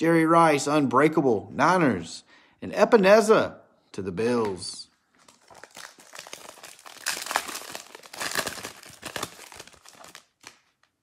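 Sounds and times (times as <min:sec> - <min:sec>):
foil wrapper crinkling and tearing: 0:05.2 - 0:11.0.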